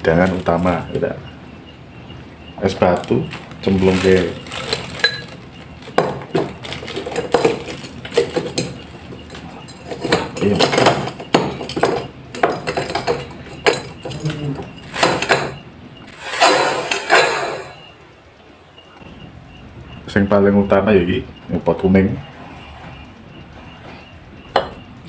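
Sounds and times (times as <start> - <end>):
plastic bag crinkling: 3.0 - 6.0, 6.6 - 8.4
ice cubes clinking in glass: 3.9 - 8.8, 16.2 - 17.8.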